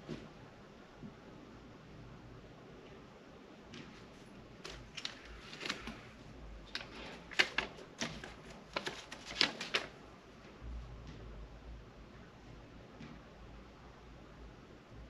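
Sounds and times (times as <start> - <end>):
paper crackling being unfolded: 4.2 - 10.0.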